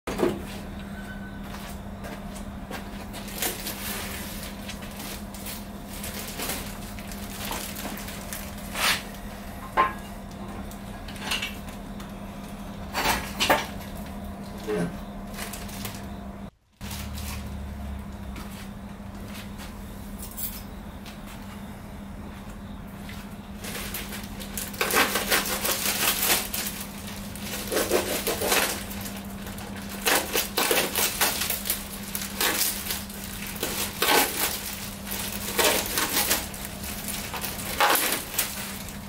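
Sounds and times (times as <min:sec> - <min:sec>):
steady low hum: 0:00.1 - 0:39.0
plastic wrap crinkling: 0:03.0 - 0:09.4, 0:23.6 - 0:39.0
metal clanks and clinks: 0:20.2 - 0:20.7.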